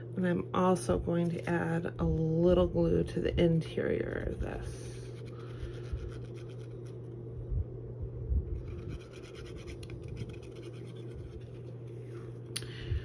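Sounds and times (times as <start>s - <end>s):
low hum: 0.0s - 13.0s
fingers rubbing on paper: 5.0s - 7.0s, 8.6s - 12.1s.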